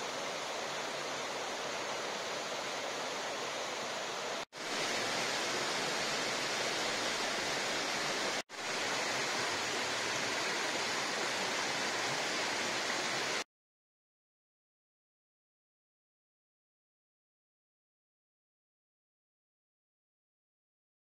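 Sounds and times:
waterfall and stream rushing: 0.0 - 13.4.

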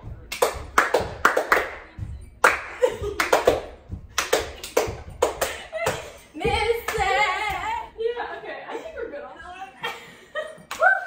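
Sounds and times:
sharp handclaps: 0.0 - 6.2, 6.8 - 7.6.

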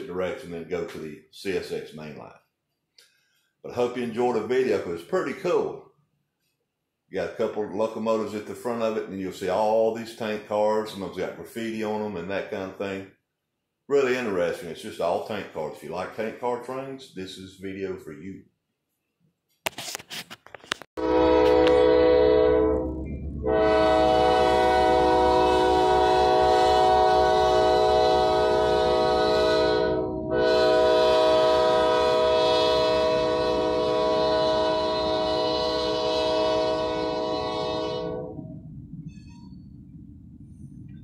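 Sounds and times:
locomotive air horn: 21.0 - 38.5
train rolling rumble: 22.8 - 29.4, 34.6 - 41.0.

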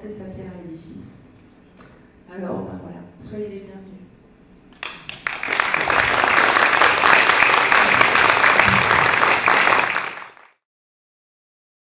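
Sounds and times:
audience applauding: 4.8 - 10.6.

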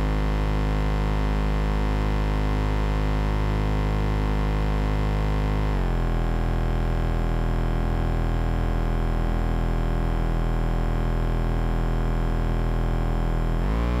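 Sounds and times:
noisy synthesizer drone: 10.8 - 14.0.

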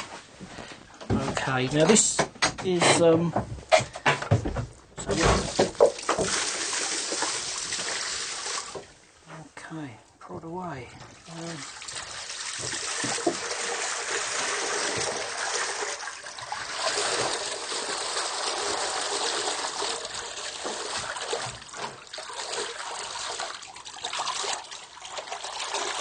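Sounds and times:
water gushing and splashing: 5.0 - 9.0, 11.0 - 26.0.

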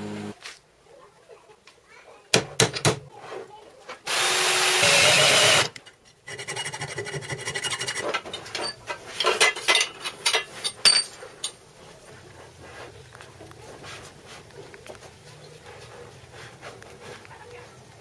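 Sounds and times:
power drill boring through steel: 4.1 - 5.7
metal tools clinking and clattering: 5.9 - 11.6.

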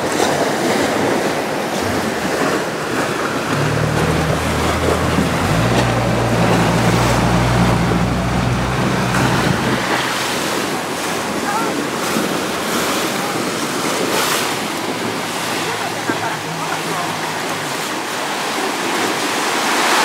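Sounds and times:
wind on microphone: 0.0 - 11.4
water splashing: 0.0 - 20.0
outboard motor humming: 0.3 - 20.0.

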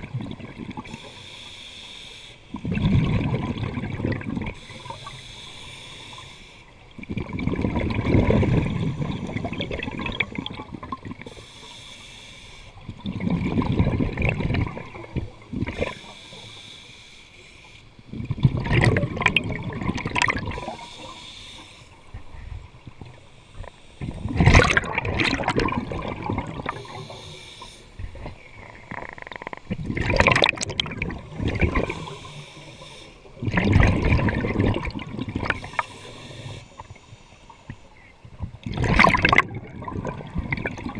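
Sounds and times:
exhaled bubbles rushing: 0.0 - 1.0, 2.6 - 4.7, 7.0 - 11.3, 12.9 - 16.1, 18.1 - 20.8, 24.0 - 27.1, 29.7 - 32.2, 33.4 - 35.9, 38.6 - 40.9
regulator inhalation hiss: 0.9 - 2.5, 4.6 - 6.8, 11.2 - 12.8, 15.8 - 18.0, 20.5 - 22.1, 23.3 - 24.3, 26.7 - 28.1, 31.8 - 33.4, 35.6 - 38.1.

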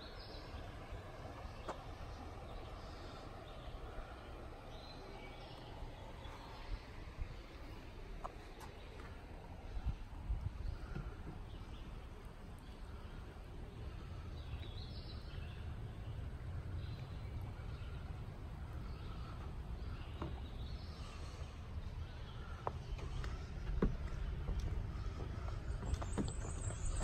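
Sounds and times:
faint bird calls: 0.0 - 27.0
steady low rumble: 0.0 - 27.0
footsteps on wooden footbridge: 19.8 - 27.0.

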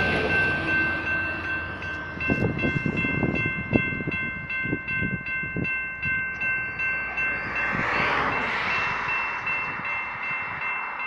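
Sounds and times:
railroad crossing bell dinging: 0.0 - 11.0
rush of noise: 6.4 - 11.0.

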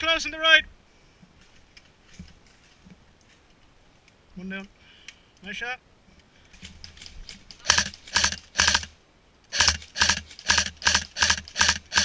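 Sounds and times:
airsoft rifle shots: 7.6 - 8.9, 9.5 - 12.0.

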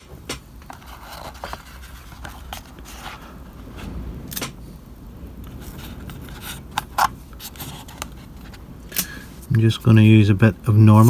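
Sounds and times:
masking tape rustling: 0.0 - 4.5.

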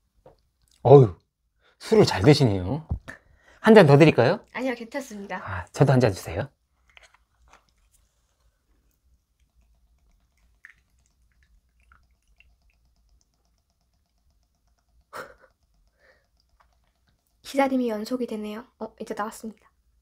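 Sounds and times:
faint plastic clicks: 8.7 - 18.1.

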